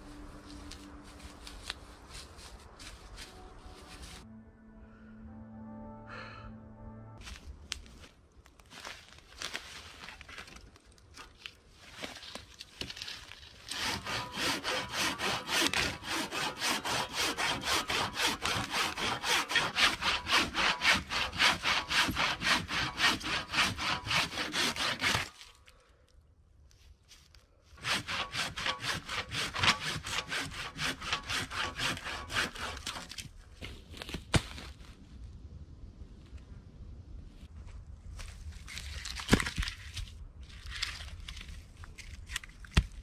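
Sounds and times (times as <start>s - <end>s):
hand saw cutting log: 13.7s - 25.5s, 27.8s - 33.2s.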